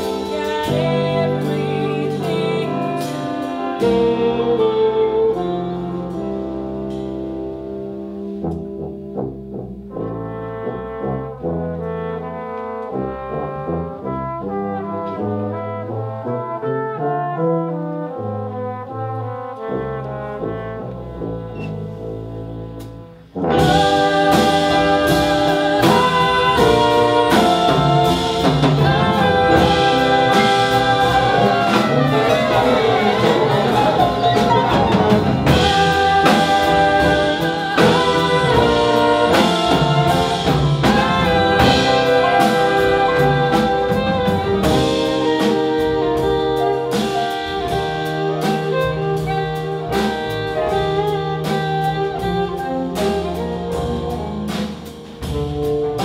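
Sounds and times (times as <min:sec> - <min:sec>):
double bass: 0:00.0 - 0:56.0
drums: 0:00.0 - 0:56.0
jazz band playing: 0:00.0 - 0:56.0
trombone: 0:00.0 - 0:56.0
trumpet: 0:00.0 - 0:56.0.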